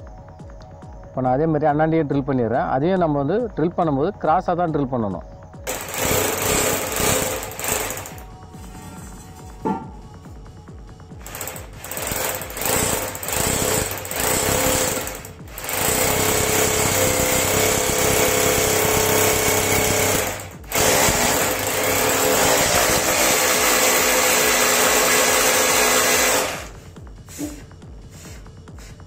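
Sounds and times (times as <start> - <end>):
electric drill boring into tile: 5.7 - 8.2, 11.2 - 26.8.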